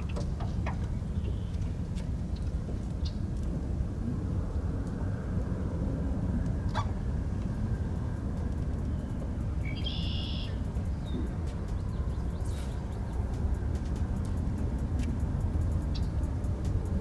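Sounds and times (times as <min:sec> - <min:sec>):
steady low rumble: 0:00.0 - 0:17.0
bird call: 0:09.6 - 0:11.2.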